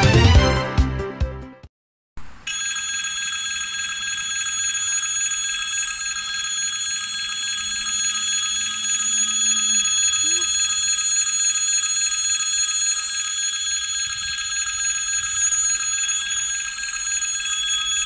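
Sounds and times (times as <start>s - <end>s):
music: 0.0s - 1.7s
level crossing bell ringing: 2.5s - 18.0s.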